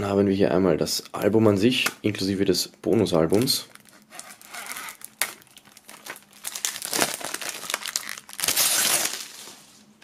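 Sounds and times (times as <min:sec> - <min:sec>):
plastic film crinkling: 0:03.0 - 0:09.8
knife slitting plastic film: 0:03.8 - 0:09.5.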